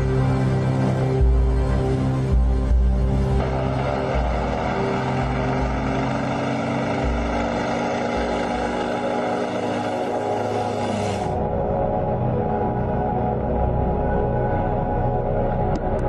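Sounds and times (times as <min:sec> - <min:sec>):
propeller plane engine running: 0:00.0 - 0:11.7.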